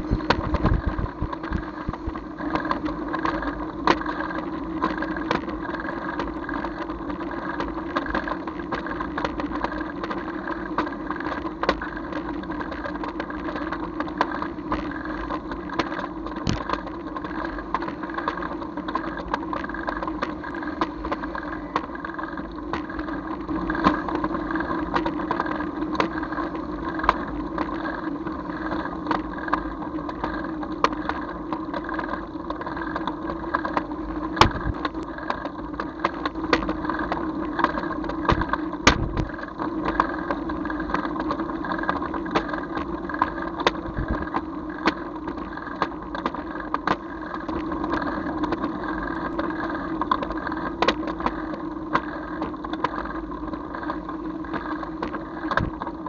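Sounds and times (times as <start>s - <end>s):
vehicle engine humming: 0.0s - 4.4s, 14.1s - 29.6s
small knocks and rattles: 0.0s - 24.3s, 29.1s - 48.8s, 53.8s - 56.0s.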